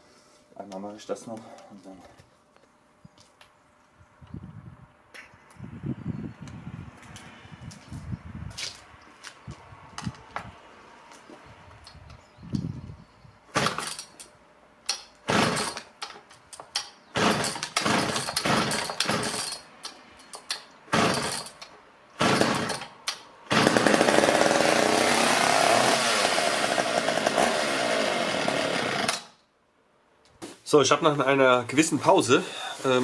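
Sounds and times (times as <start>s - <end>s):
chainsaw pull-start bursts: 13.6s - 14.1s, 15.2s - 16.0s, 17.2s - 19.7s, 20.9s - 21.6s, 22.2s - 29.4s
chainsaw running: 15.3s - 15.9s, 17.2s - 19.6s, 20.9s - 21.5s, 22.2s - 22.9s, 23.5s - 29.4s.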